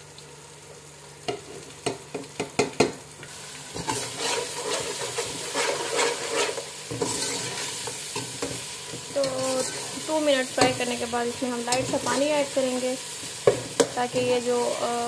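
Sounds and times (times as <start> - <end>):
vegetables sizzling in oil: 0.0 - 15.0
metal spoon stirring and scraping: 3.8 - 12.6, 13.2 - 15.0.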